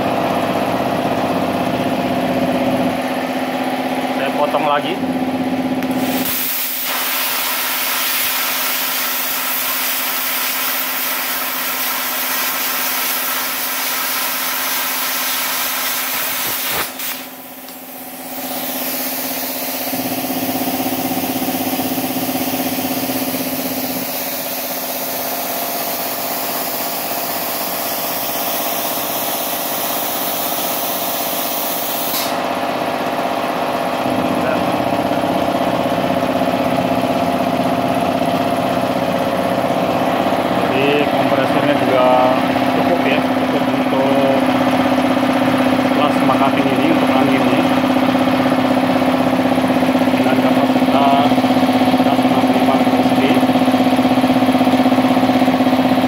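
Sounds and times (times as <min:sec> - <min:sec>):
plasma cutter hissing: 0:05.9 - 0:20.2, 0:23.2 - 0:32.4.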